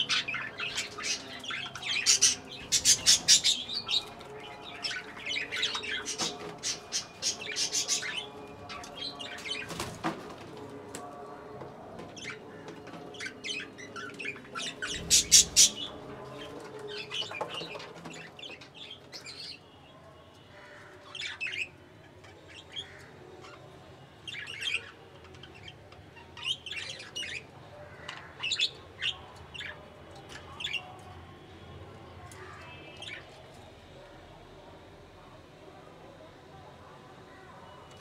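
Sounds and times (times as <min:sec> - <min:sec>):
budgerigars chirping: 0:00.0 - 0:04.1, 0:13.6 - 0:15.9.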